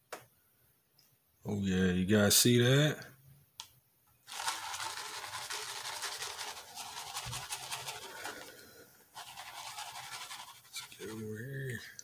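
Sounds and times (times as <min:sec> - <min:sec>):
sand scraping against plastic pan: 0:09.1 - 0:11.3.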